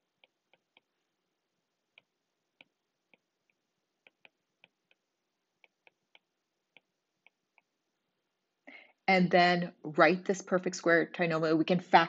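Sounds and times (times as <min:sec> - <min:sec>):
stylus tapping on tablet screen: 0:00.0 - 0:01.2, 0:01.8 - 0:07.9.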